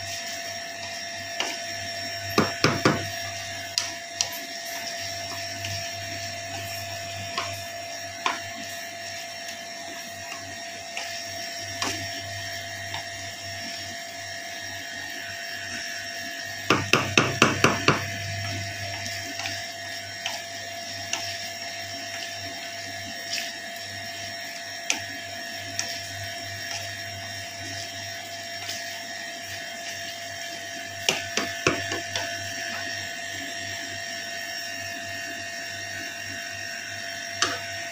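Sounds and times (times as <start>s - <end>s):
steady hum: 0.0s - 34.5s
spatula tapping on pan: 2.4s - 3.1s, 16.7s - 18.1s.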